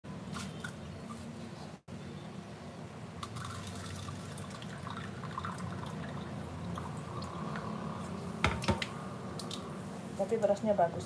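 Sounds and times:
water splashing and dripping: 8.5 - 9.8.

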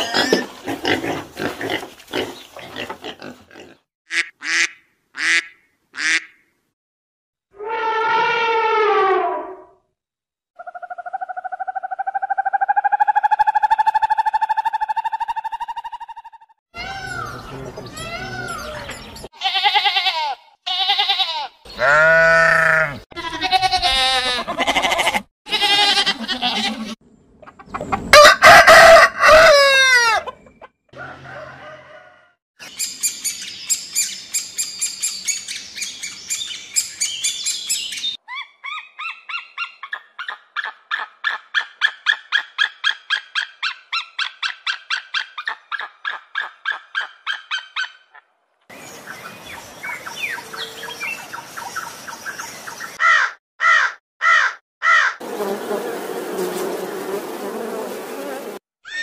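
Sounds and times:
sheep bleating: 19.4 - 27.0.

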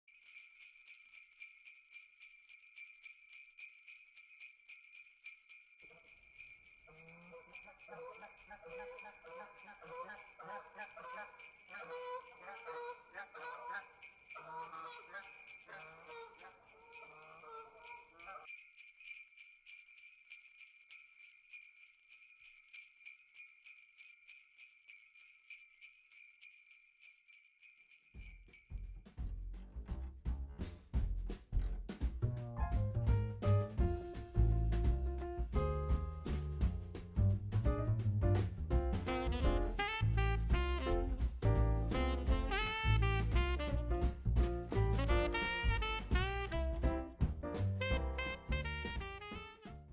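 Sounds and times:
sleigh bells jingling: 0.0 - 29.5, 38.0 - 44.1, 44.7 - 46.8, 47.6 - 49.4
geese honking: 7.3 - 18.4.

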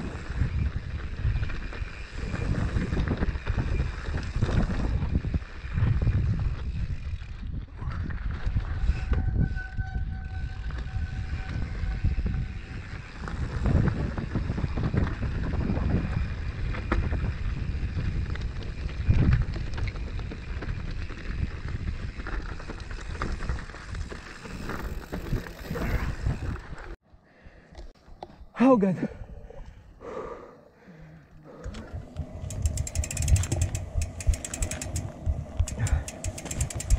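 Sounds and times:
bike tyre rumble on dirt: 0.0 - 27.0, 31.8 - 36.9
wind buffeting microphone: 0.0 - 27.0, 31.7 - 36.9
bike knocks and rattles: 32.2 - 36.9.

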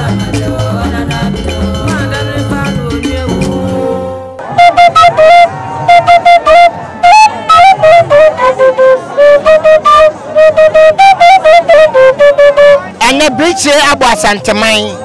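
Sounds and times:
flute playing short notes: 4.0 - 13.9.

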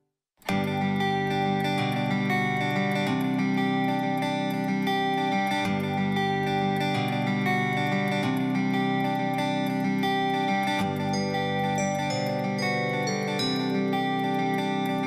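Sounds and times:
guitar background music: 0.4 - 15.0.

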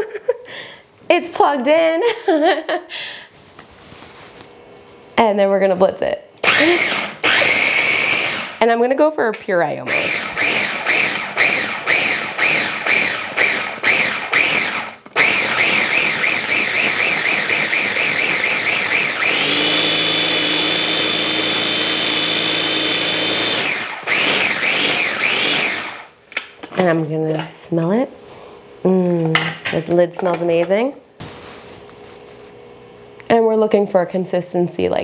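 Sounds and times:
food chopper motor whine: 6.4 - 8.6, 9.9 - 26.2.

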